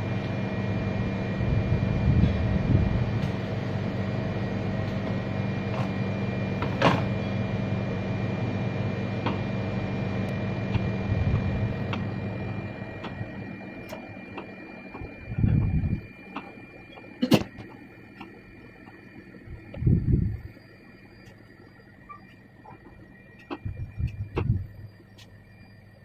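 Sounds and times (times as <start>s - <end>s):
electric fan humming: 0.0s - 26.0s.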